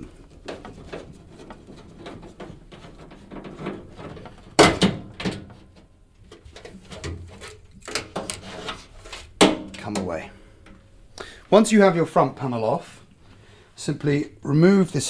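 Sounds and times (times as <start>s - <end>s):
sheet metal panel knocks and rattles: 0.0s - 8.5s, 9.4s - 10.1s.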